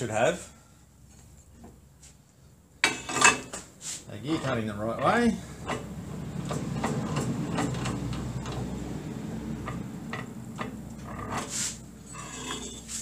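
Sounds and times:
metal clicks and knocks: 0:05.0 - 0:08.8, 0:09.6 - 0:11.4.

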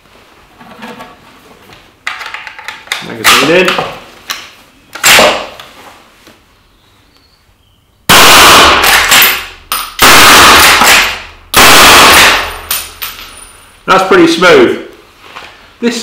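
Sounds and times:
rifle shots echoing: 0:08.1 - 0:12.7.

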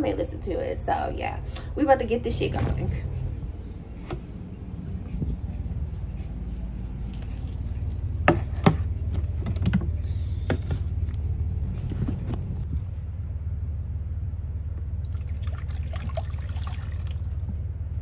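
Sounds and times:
steady low hum: 0:00.0 - 0:18.0
water pouring into a bowl: 0:15.1 - 0:17.4.

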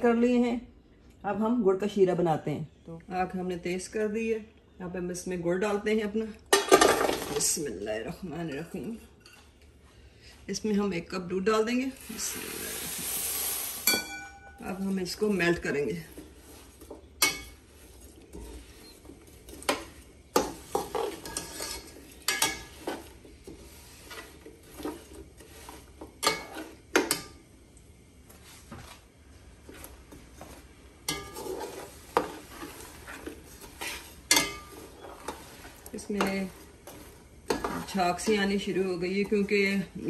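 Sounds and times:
metal spoon scraping a pot: 0:16.2 - 0:27.3, 0:31.0 - 0:39.5.

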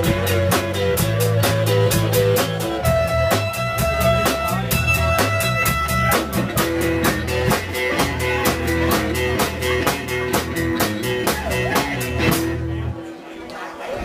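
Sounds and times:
harmonica: 0:00.0 - 0:09.1
fast drum beat: 0:00.0 - 0:12.6
live rock band playing: 0:00.0 - 0:13.0.

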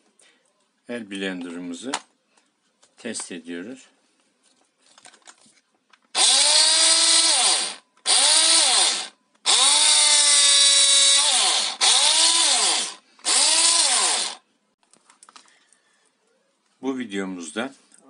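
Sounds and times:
hand blender motor whining: 0:06.2 - 0:14.4.

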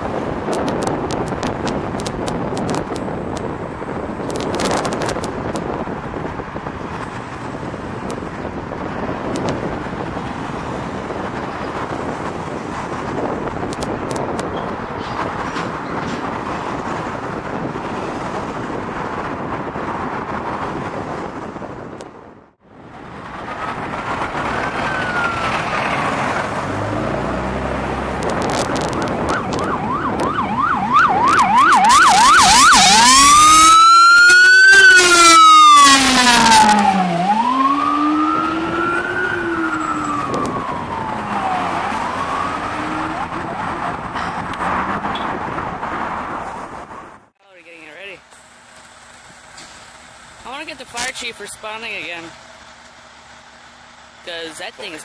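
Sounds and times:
road traffic noise: 0:00.0 - 0:55.0
ambulance siren: 0:24.5 - 0:26.1, 0:28.8 - 0:44.2.

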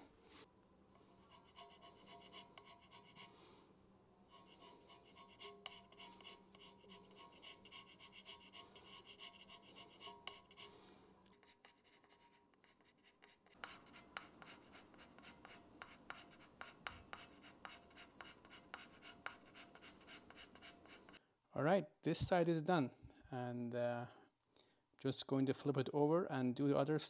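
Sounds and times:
hand scraper scraping strokes: 0:01.0 - 0:03.5, 0:04.3 - 0:21.2.

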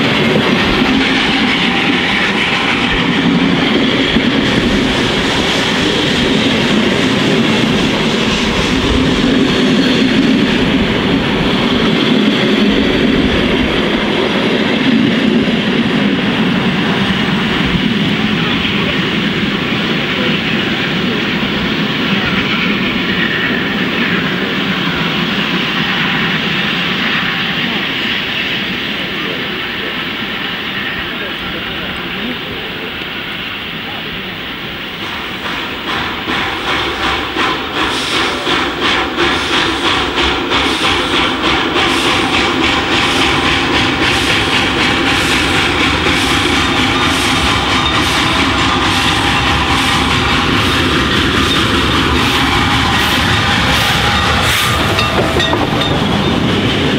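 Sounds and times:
steam locomotive wheels clattering: 0:00.0 - 0:56.9.

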